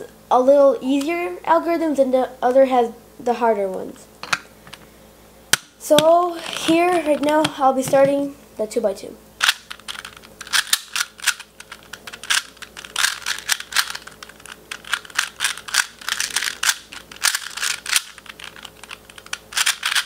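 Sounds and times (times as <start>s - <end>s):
puzzle cube clicking as turned: 9.4s - 20.0s.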